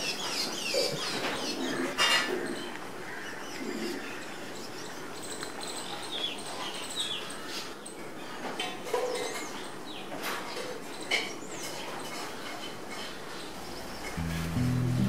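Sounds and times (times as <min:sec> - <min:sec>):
small birds chirping: 0:00.0 - 0:12.3
steady hiss: 0:14.1 - 0:15.0.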